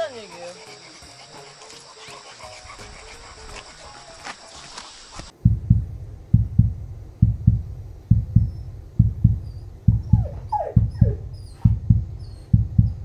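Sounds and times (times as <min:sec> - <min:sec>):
outdoor ambience: 0:00.0 - 0:13.0
heartbeat thumps: 0:05.3 - 0:13.0.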